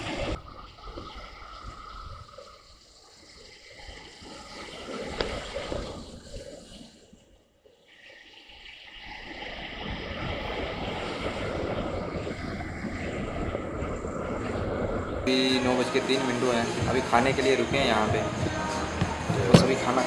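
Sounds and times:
wind on microphone: 0:00.0 - 0:03.0, 0:09.1 - 0:15.9
motorcycle road noise: 0:18.2 - 0:20.0
sharp knock: 0:19.4 - 0:19.8.

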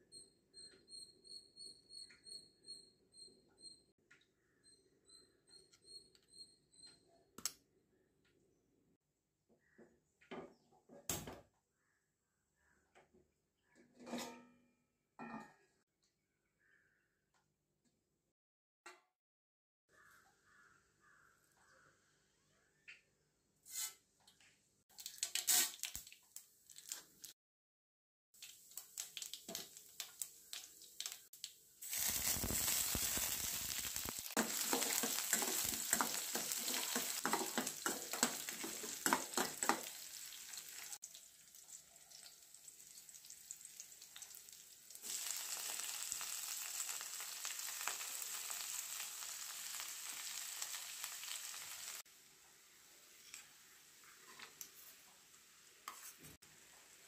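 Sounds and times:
seeds crackling in hot oil: 0:24.9 - 0:27.4, 0:28.4 - 0:57.0
food sizzling in oil: 0:25.0 - 0:27.1, 0:28.4 - 0:52.0
steel spoon stirring in pan: 0:31.8 - 0:40.9.

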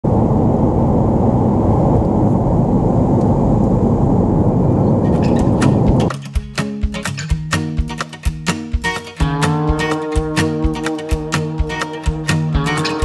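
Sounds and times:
jet engines at takeoff power: 0:00.0 - 0:06.0
acoustic guitar music: 0:05.0 - 0:13.0.

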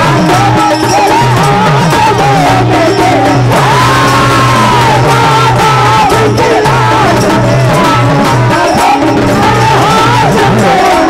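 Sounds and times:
hand drum strokes: 0:00.0 - 0:11.0.

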